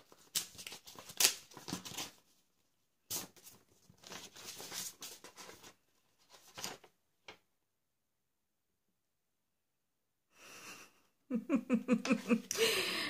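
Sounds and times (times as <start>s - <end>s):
paper rustling: 0.0s - 2.5s, 3.1s - 7.4s.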